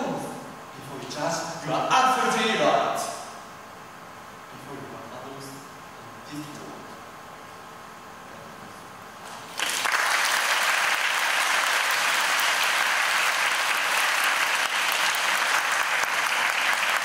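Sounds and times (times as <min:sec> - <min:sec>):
audience applause: 0:09.5 - 0:17.0.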